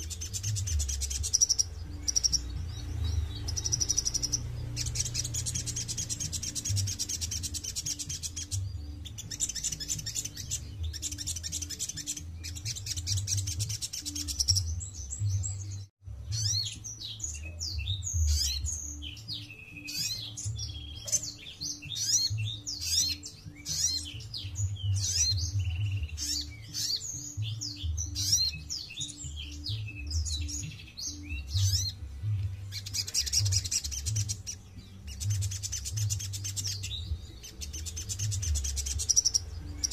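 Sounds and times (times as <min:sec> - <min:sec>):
bird chirps and whistles: 0:37.8 - 0:39.9.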